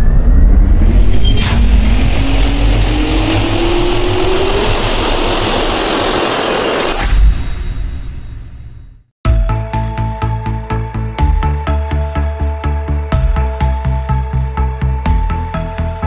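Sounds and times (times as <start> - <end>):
jet turbine whine rising: 0.0 - 8.8
sharp hit: 0.0 - 9.0.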